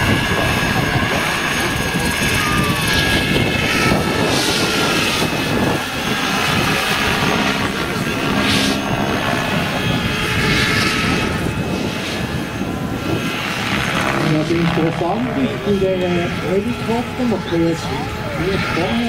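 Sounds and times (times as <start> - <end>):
high motor whine: 0.0 - 19.0
model helicopter rotor noise: 0.0 - 19.0.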